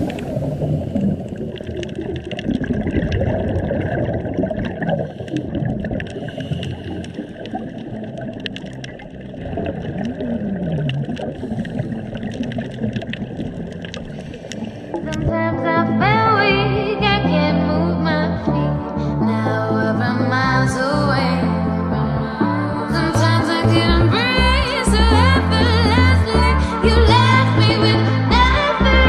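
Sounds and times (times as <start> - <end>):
exhaled breath bubbling underwater: 0.0 - 15.4.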